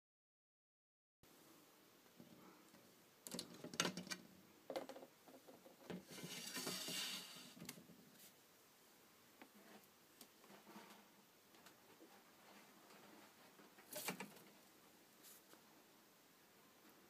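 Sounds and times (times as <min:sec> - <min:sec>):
rasping scrape: 0:06.0 - 0:07.6.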